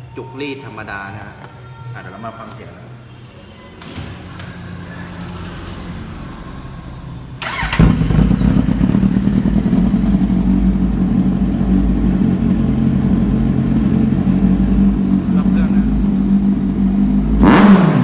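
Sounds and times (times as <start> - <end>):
electric starter cranking: 7.4 - 8.3
motorcycle engine idling: 7.4 - 17.4.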